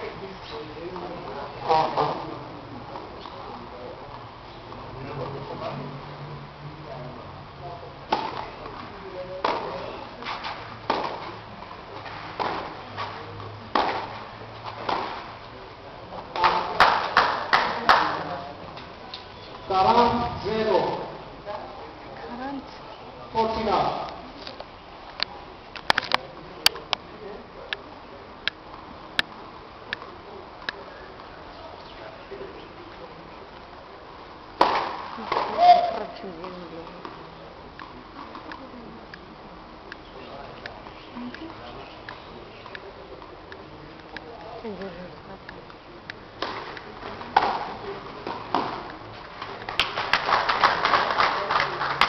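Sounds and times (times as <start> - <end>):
faint steady background noise: 0.0 - 52.0
rackets striking tennis ball: 8.1 - 15.5, 16.2 - 19.3, 34.6 - 37.2, 46.4 - 52.0
tennis ball bouncing on clay: 9.4 - 9.8, 10.8 - 11.3, 13.7 - 15.3, 46.4 - 49.0.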